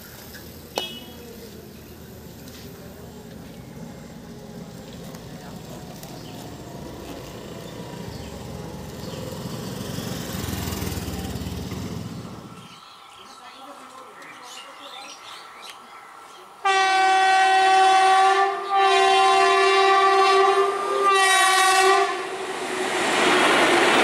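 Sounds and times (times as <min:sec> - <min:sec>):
road traffic: 0:00.0 - 0:17.8, 0:18.4 - 0:24.0
scooter engine passing: 0:03.8 - 0:12.7.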